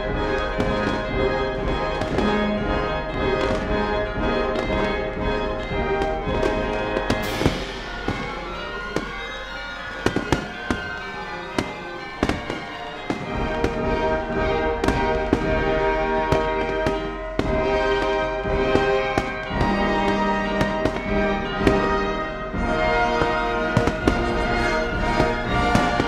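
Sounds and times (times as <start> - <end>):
fireworks bangs and pops: 0.0 - 26.0
music with sustained notes: 0.0 - 26.0.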